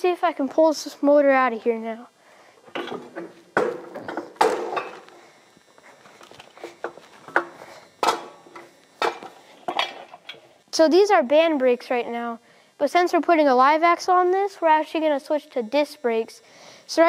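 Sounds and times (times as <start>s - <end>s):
footsteps: 2.7s - 9.8s.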